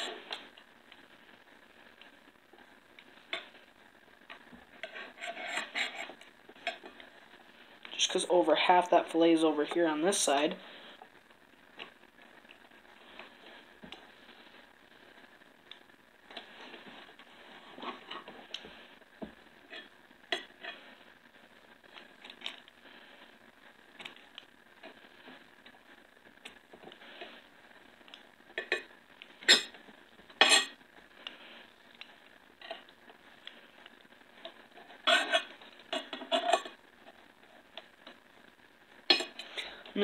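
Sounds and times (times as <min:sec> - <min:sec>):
knife scraping ceramic plate: 0:04.8 - 0:06.1.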